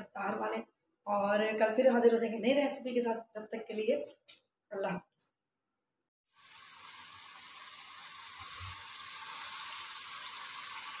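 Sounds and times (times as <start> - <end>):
curry sizzling in a wok: 6.3 - 11.0.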